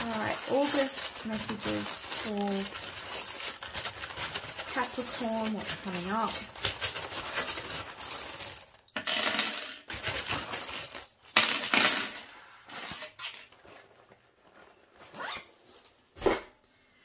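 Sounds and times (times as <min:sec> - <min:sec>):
metal charms jingling and clinking: 0:00.0 - 0:09.0.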